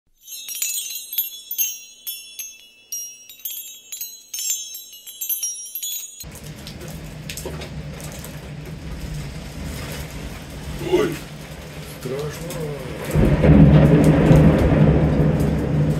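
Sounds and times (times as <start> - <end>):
high tinkling chime jingle: 0.1 - 6.4
thunderstorm: 6.3 - 15.9.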